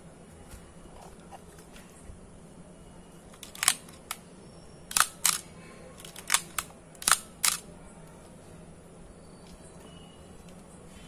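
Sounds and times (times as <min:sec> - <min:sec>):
camera shutter clicks: 0:04.9 - 0:07.6.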